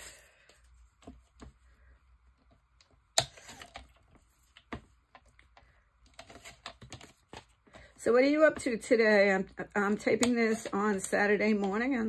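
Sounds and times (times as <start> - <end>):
paper and plastic clicks and taps: 2.8 - 8.0, 10.0 - 12.0.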